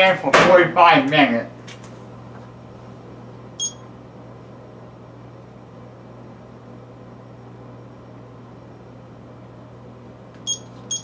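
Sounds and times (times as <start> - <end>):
low appliance hum: 0.0 - 11.0
oven beep: 3.6 - 3.9, 10.4 - 11.0.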